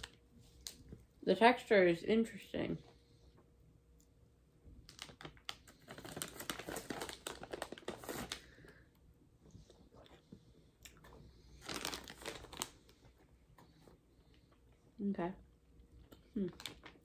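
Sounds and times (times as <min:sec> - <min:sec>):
plastic candy bag crinkling: 0:00.0 - 0:01.0, 0:04.8 - 0:09.0, 0:10.9 - 0:14.6, 0:16.0 - 0:17.0.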